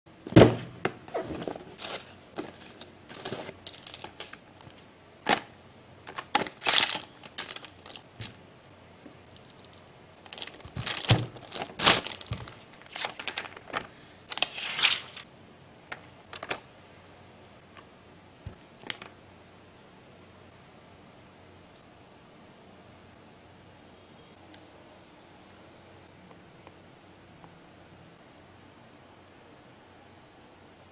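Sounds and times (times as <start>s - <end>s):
cardboard box knocked and set down: 0.3s - 0.7s
plastic bag crinkling: 1.8s - 4.4s, 6.1s - 8.1s, 9.3s - 15.2s.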